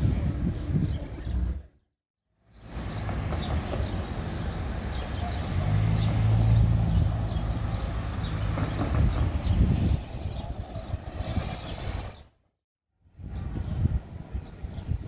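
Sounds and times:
cars passing: 0:02.5 - 0:12.3.

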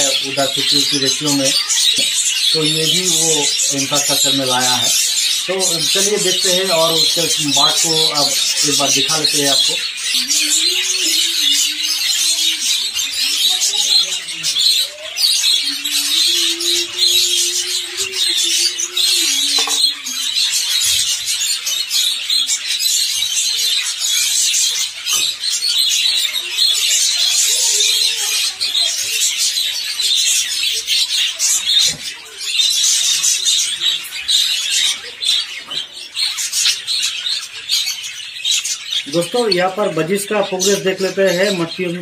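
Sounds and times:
budgerigars chattering: 0:00.0 - 0:42.0.

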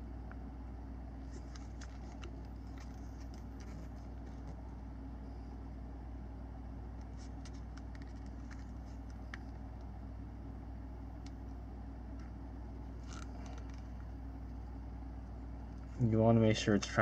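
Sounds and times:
steady low hum: 0:00.0 - 0:17.0
tape crackling and clicking: 0:01.2 - 0:04.8, 0:06.9 - 0:10.0, 0:11.1 - 0:14.7.

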